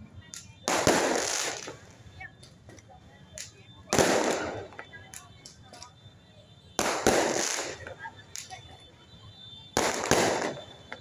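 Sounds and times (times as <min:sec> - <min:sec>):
firework pops and crackles: 0:00.1 - 0:06.0, 0:06.7 - 0:08.9, 0:09.7 - 0:11.0
firework booms: 0:00.7 - 0:01.8, 0:03.9 - 0:04.9, 0:06.8 - 0:08.6, 0:09.7 - 0:11.0.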